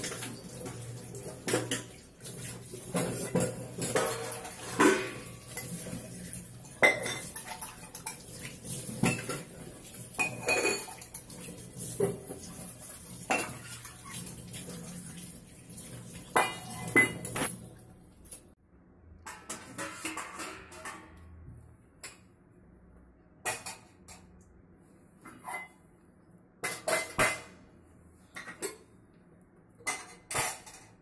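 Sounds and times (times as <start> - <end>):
steel utensils clanking: 0.0 - 12.6, 16.3 - 17.6, 19.3 - 21.4.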